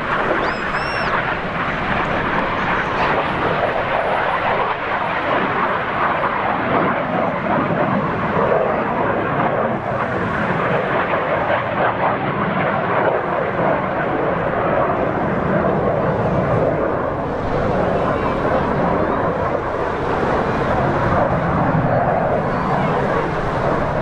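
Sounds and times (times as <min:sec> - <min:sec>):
jet engines rushing: 0:00.0 - 0:24.0
high pitched wavering call: 0:00.4 - 0:01.2.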